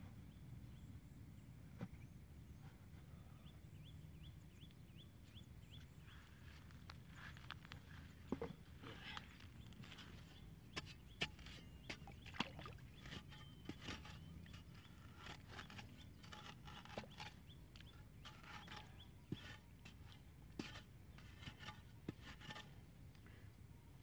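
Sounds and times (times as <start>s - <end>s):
spade scraping wet mud: 6.6s - 22.9s.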